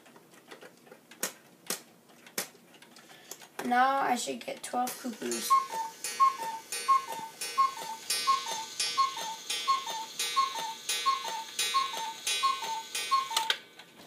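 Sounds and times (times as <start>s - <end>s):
clock mechanism clicking: 4.9s - 13.6s
cuckoo clock call: 5.3s - 13.6s.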